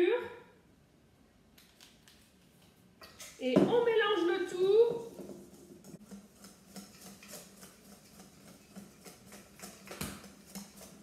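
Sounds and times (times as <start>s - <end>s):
whisk ticking on metal bowl: 6.0s - 11.0s.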